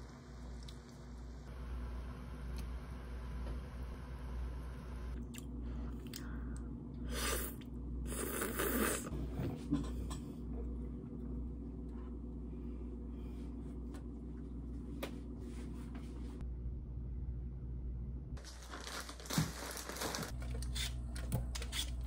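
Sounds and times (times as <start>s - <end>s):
steady low hum: 0.0s - 18.7s
person slurping noodles: 7.1s - 9.1s.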